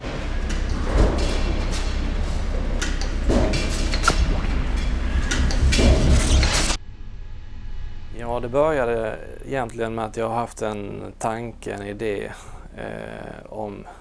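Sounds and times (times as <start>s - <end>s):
metallic clanks and knocks: 0.0s - 6.8s.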